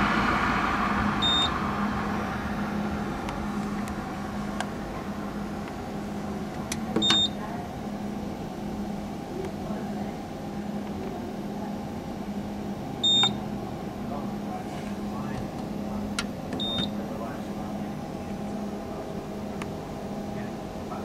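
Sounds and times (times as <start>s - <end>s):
steady low hum: 0.0s - 21.0s
short high electronic beeps: 1.2s - 1.5s.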